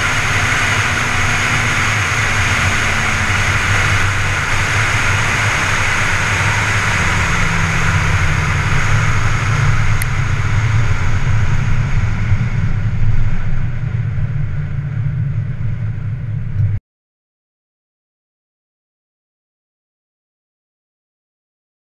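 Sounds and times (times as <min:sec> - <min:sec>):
wind hiss: 0:00.0 - 0:13.8
car engine at low revs: 0:00.0 - 0:16.8.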